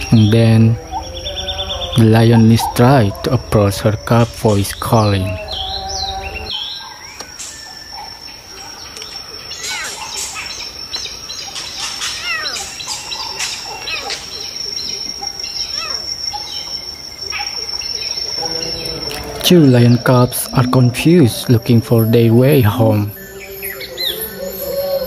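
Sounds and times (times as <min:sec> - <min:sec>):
lion cub crying: 0:00.0 - 0:06.6, 0:11.8 - 0:14.5, 0:15.2 - 0:16.5
high-pitched insect drone: 0:00.0 - 0:25.0.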